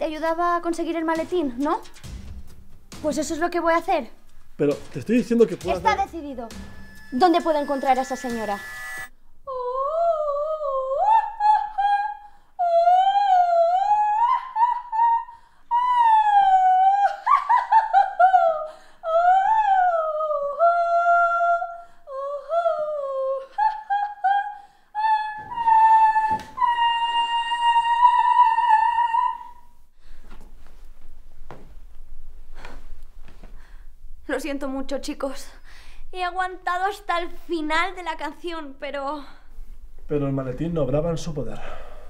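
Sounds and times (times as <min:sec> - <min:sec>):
woman singing operatically: 0:09.5 - 0:29.6.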